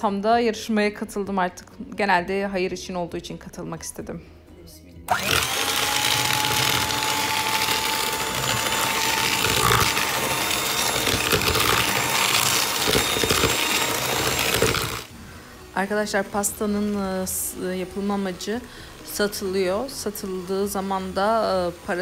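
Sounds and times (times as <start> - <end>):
electric hand mixer whisking: 5.1 - 22.0.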